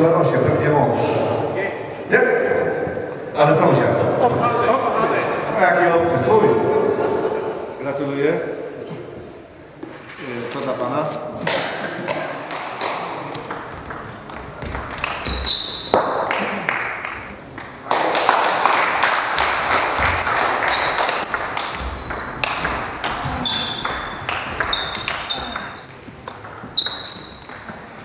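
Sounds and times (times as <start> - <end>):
table tennis ball clicking: 19.8 - 28.0
people talking: 25.0 - 25.9.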